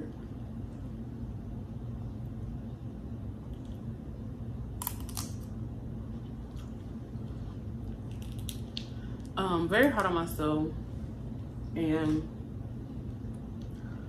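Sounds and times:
steady low hum: 0:00.0 - 0:14.0
crab shell cracking: 0:04.8 - 0:05.6, 0:07.9 - 0:09.3.

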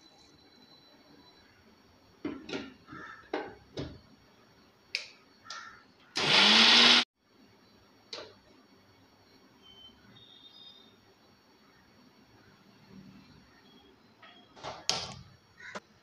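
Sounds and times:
mixer grinder motor running: 0:06.2 - 0:07.0.

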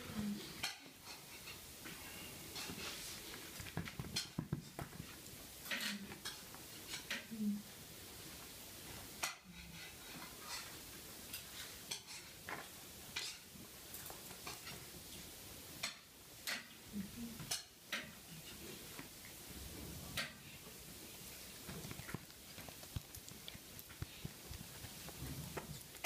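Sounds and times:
dog claws tapping on stone floor: 0:03.5 - 0:05.2
ball knocking on stone floor: 0:03.7 - 0:05.0.

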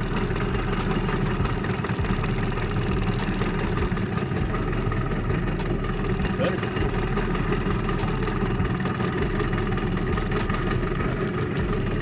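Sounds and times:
outboard motor droning: 0:00.0 - 0:12.0.

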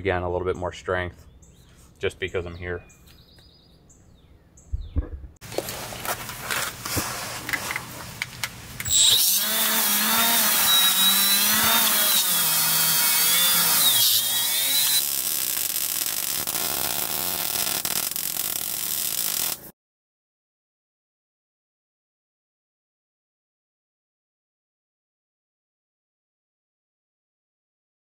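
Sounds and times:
die grinder on steel: 0:08.8 - 0:19.7
welder crackling hiss: 0:13.9 - 0:19.7.

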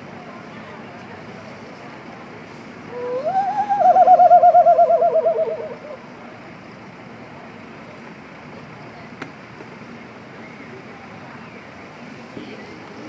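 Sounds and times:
hand whistled bird call: 0:02.9 - 0:06.0.

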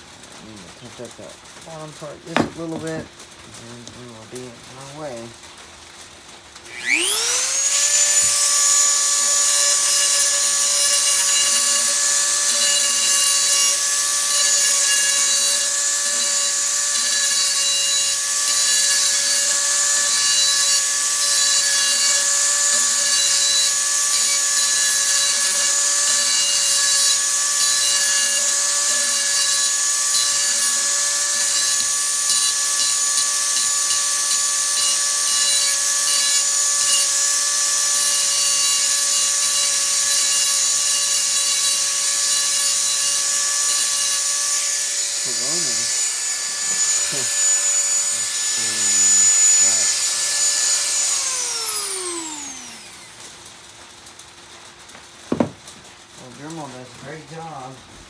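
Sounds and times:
rotary tool whining: 0:06.6 - 0:53.4
grinding steel edge: 0:06.7 - 0:53.2.

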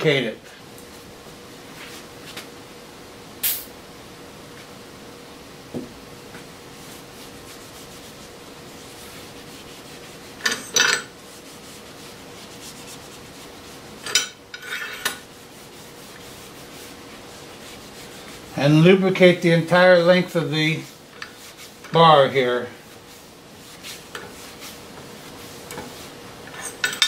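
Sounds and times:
cloth rag wiping steel bar: 0:06.7 - 0:14.2, 0:15.0 - 0:26.8.

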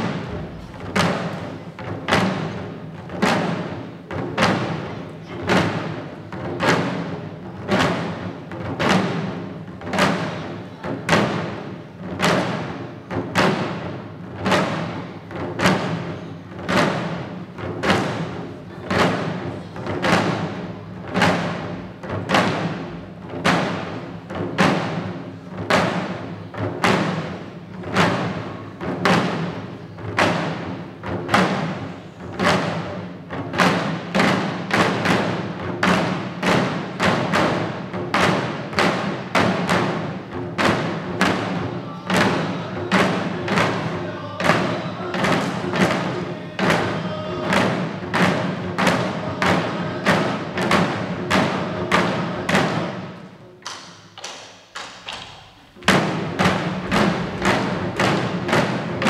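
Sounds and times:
small drums struck with sticks: 0:00.0 - 0:59.0.

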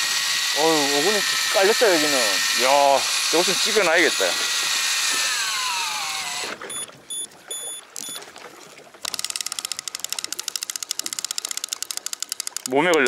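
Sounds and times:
fishing reel clicking: 0:00.0 - 0:06.9, 0:09.0 - 0:13.0
short high beeps: 0:06.7 - 0:08.2.

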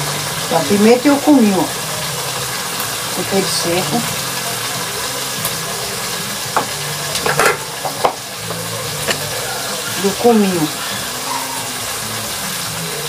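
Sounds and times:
crab sizzling in a pot: 0:00.0 - 0:13.0
kitchen utensils clinking: 0:06.6 - 0:11.9.

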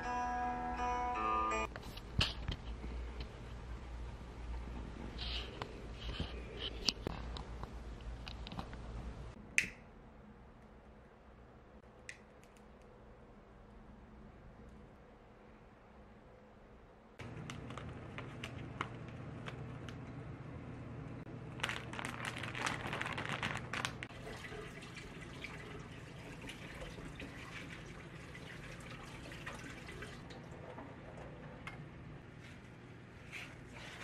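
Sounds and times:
leaves rustling: 0:21.6 - 0:24.1.

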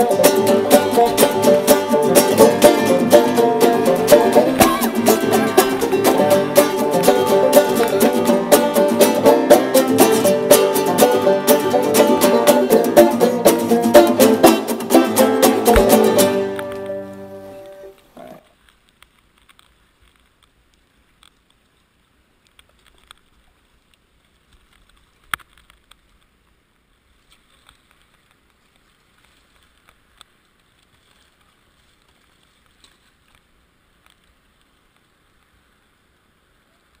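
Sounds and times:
sharp knock: 0:15.6 - 0:16.3
paddle splashes and drips: 0:27.1 - 0:35.2.

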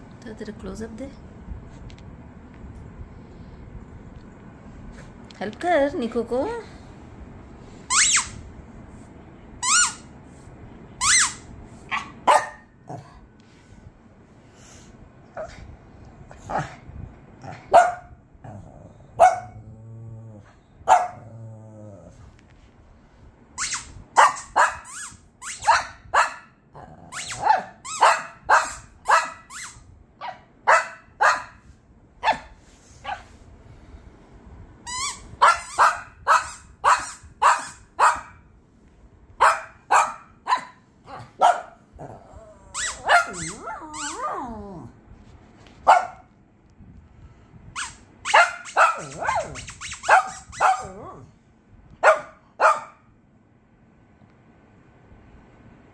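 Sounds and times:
dog yelping: 0:11.0 - 0:12.6, 0:23.6 - 0:26.5, 0:27.2 - 0:31.5, 0:34.9 - 0:38.4, 0:42.7 - 0:44.6, 0:47.8 - 0:51.2, 0:52.0 - 0:53.0
small dogs barking: 0:11.9 - 0:12.7, 0:17.5 - 0:18.2, 0:19.2 - 0:19.6, 0:20.9 - 0:21.2, 0:24.2 - 0:24.9, 0:25.6 - 0:26.5, 0:27.4 - 0:29.5, 0:30.2 - 0:31.6, 0:35.4 - 0:38.4, 0:39.4 - 0:41.8, 0:42.8 - 0:44.4, 0:45.8 - 0:46.3, 0:48.3 - 0:51.2, 0:52.0 - 0:53.0
dog growling: 0:18.4 - 0:20.6, 0:21.2 - 0:22.3, 0:41.1 - 0:45.0.

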